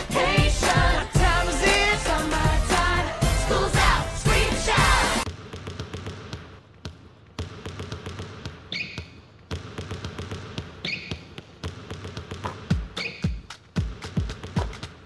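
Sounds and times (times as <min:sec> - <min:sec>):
percussive taps and knocks: 0:09.5 - 0:15.0.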